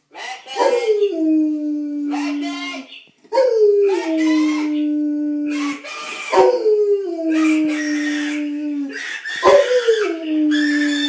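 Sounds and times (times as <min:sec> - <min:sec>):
dog howling: 0:00.6 - 0:11.0.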